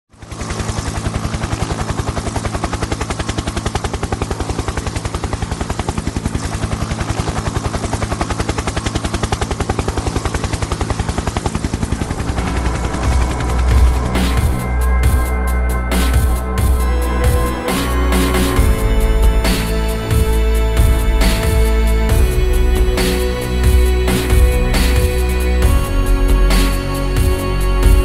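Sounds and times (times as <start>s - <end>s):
rotor blades chopping: 0.4s - 28.0s
heavy bass music: 11.7s - 28.0s.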